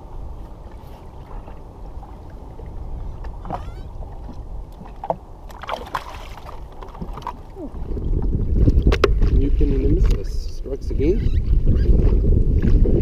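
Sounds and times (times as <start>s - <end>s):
wind buffeting microphone: 0.0s - 13.0s
water slopping against hull: 0.4s - 9.4s
fish splashing out of water: 5.0s - 7.8s.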